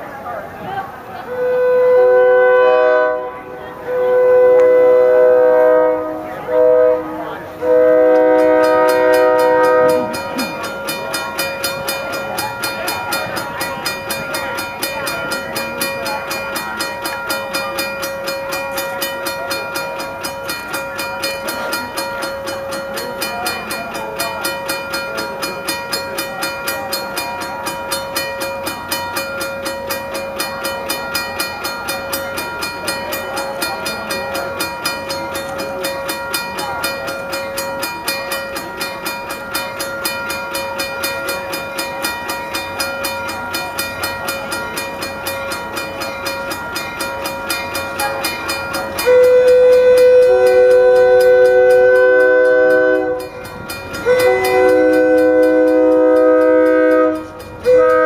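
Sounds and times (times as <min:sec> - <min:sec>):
crossing warning bell ringing: 0:00.0 - 0:58.0
train horn chord: 0:01.2 - 0:10.7, 0:49.0 - 0:58.0.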